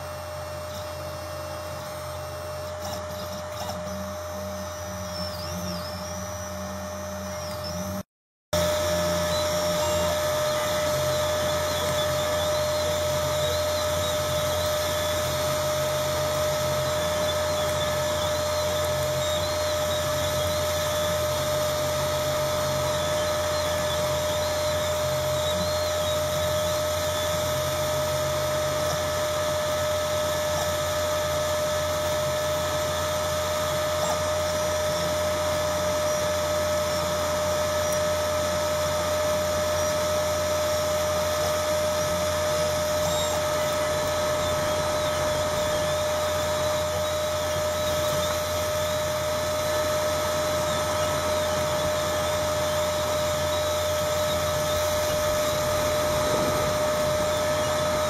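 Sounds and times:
spindle motor whine: 0.0 - 58.0
stepper motors buzzing: 0.0 - 58.0.

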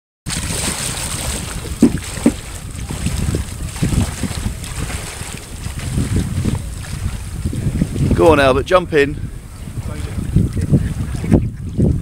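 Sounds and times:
sharp knocks or splashes: 0.3 - 6.2
wading through shallow water: 0.3 - 12.0
wind buffeting microphone: 0.3 - 12.0.

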